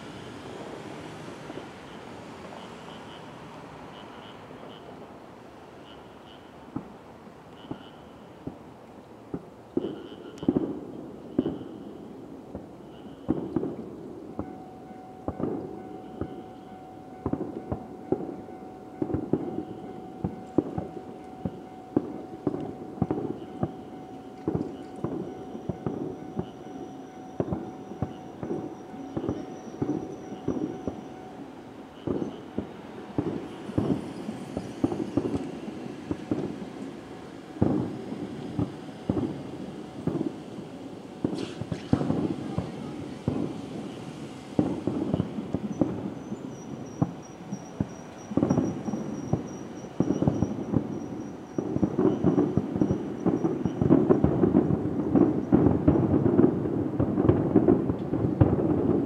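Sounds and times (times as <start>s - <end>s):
firework shells bursting: 19.0s - 59.0s.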